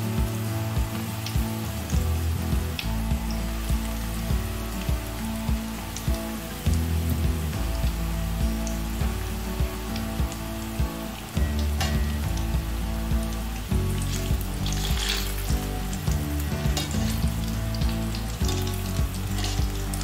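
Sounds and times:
food deep-frying in oil: 0.0 - 20.0
wire skimmer stirring in pan: 13.7 - 20.0.

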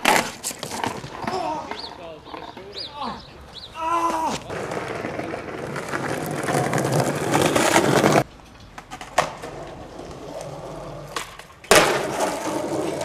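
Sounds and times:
skateboard wheels rolling on pavement: 0.0 - 13.0.

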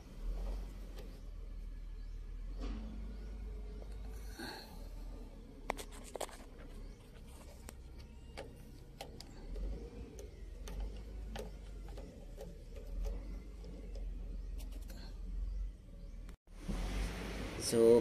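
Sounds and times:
hands working electrical connector: 5.6 - 15.4.

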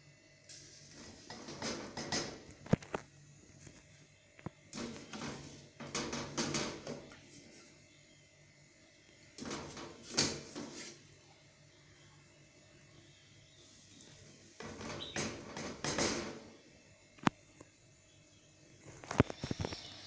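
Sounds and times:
sieve knocking against metal pot: 1.2 - 2.5, 4.8 - 7.2, 14.6 - 16.5.

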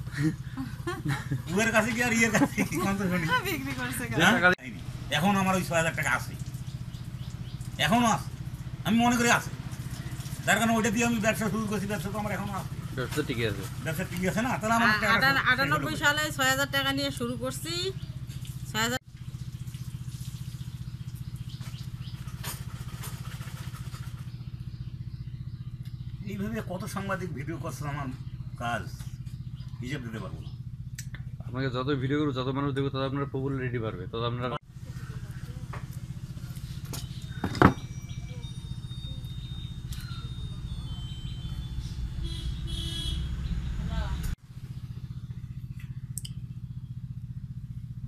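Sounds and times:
small engine idling: 0.0 - 48.0.

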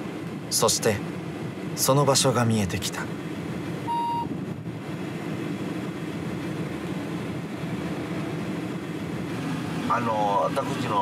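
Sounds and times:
car engine and road noise: 0.0 - 11.0
short electronic beep: 3.9 - 4.3.

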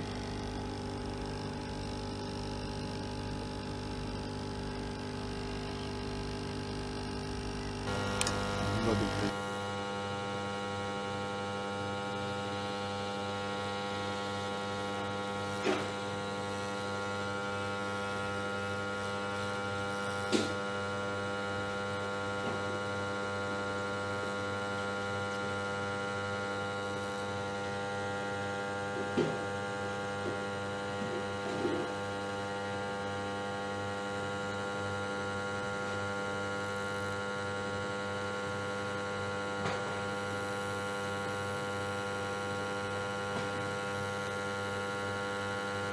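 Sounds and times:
hot air welder blower humming: 0.0 - 45.9.

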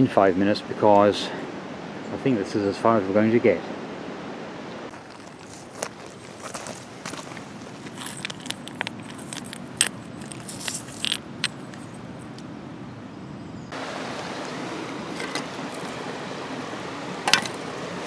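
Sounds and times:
running river water: 0.0 - 18.0
pebbles clinking together: 7.8 - 12.4.

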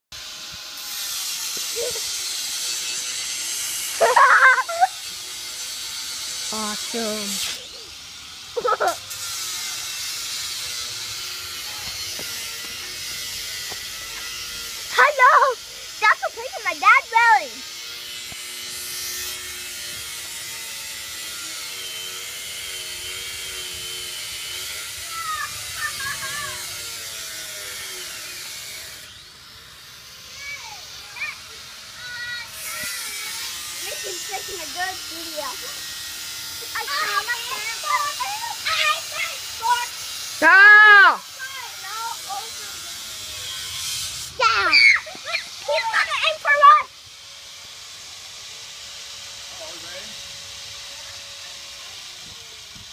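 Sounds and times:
angle grinder grinding metal: 0.2 - 52.9
steady hiss: 41.2 - 44.5.

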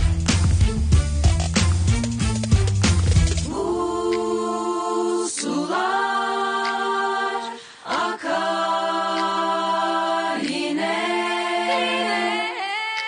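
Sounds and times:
women singing unaccompanied: 3.5 - 13.0.

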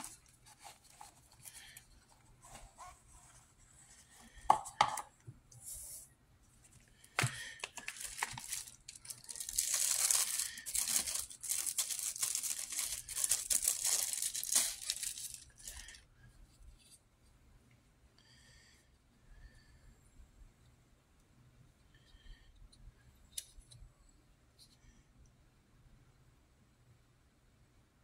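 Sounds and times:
plastic bag crinkling: 7.0 - 16.0.

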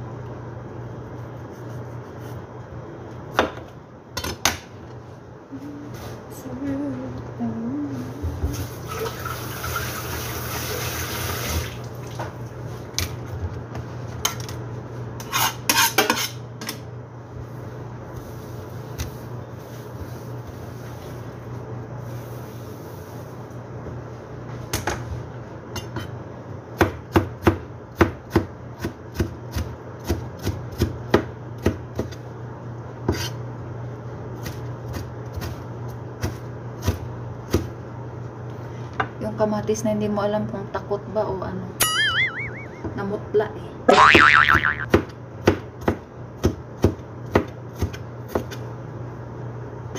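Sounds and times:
knife chopping on cutting board: 44.9 - 48.6.

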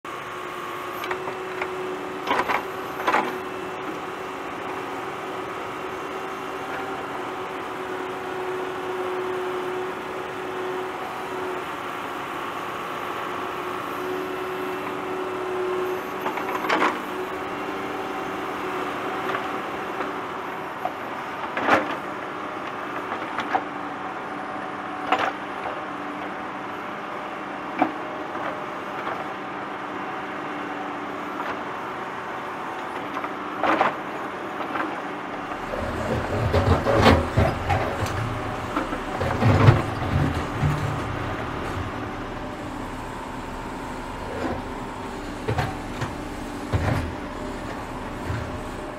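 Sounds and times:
tractor engine running: 35.4 - 48.9
heavy low rumble and clatter: 35.6 - 48.9.

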